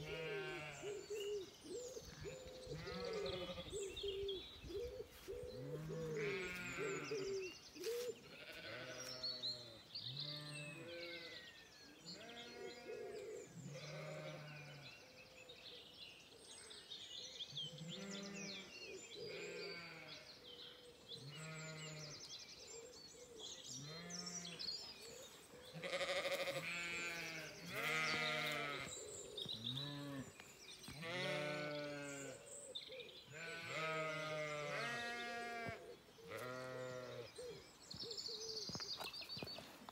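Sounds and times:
sheep and lambs bleating: 0:00.0 - 0:01.2, 0:02.7 - 0:04.0, 0:05.6 - 0:11.4, 0:12.1 - 0:13.0, 0:13.6 - 0:14.9, 0:17.8 - 0:18.7, 0:19.3 - 0:20.3, 0:21.3 - 0:22.0, 0:23.8 - 0:24.6, 0:25.7 - 0:32.4, 0:33.3 - 0:37.3.

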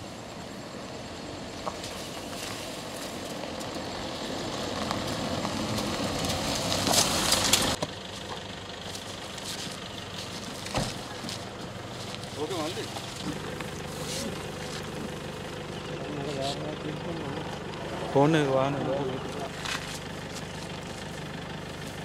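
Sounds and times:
pickup truck engine approaching: 0:00.0 - 0:22.0
tyres on dirt road: 0:00.0 - 0:22.0
thump: 0:10.7 - 0:11.0.

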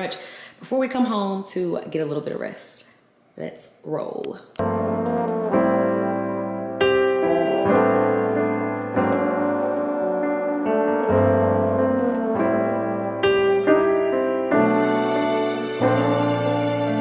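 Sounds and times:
slow piano chords: 0:04.6 - 0:17.0.

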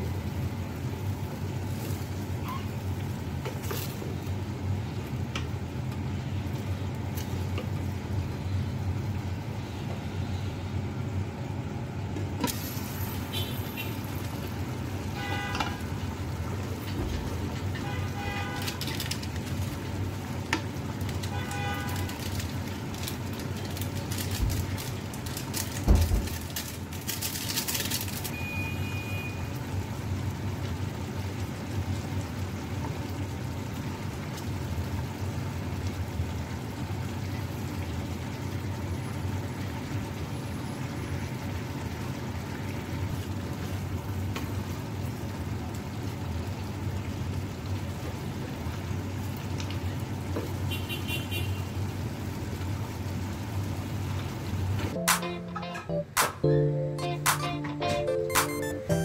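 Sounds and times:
bright crinkling rustle: 0:18.5 - 0:19.8, 0:21.0 - 0:28.4.

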